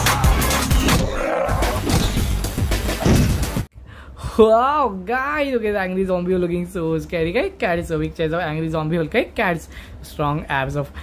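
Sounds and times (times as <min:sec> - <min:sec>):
electronic music with heavy beat: 0:00.0 - 0:03.7.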